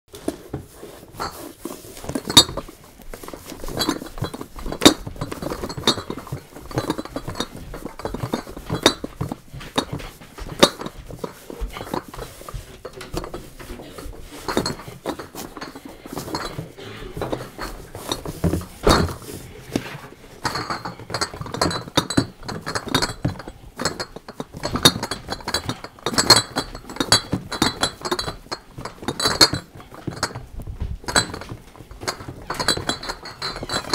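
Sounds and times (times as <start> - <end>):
glass bottles clinking together: 3.5 - 19.3, 20.4 - 30.5, 31.1 - 33.9.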